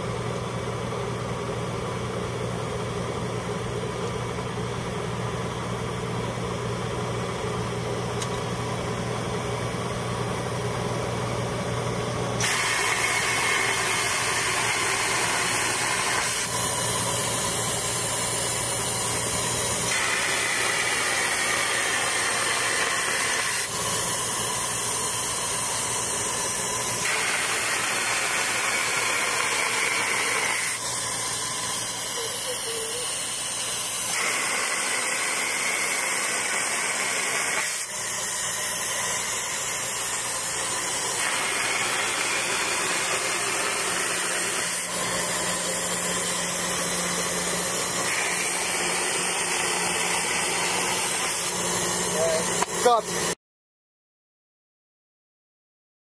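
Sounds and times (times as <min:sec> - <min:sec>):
machine engine running: 0:00.0 - 0:53.4
spray hissing from gun: 0:12.4 - 0:19.0, 0:24.6 - 0:30.9, 0:31.8 - 0:51.6.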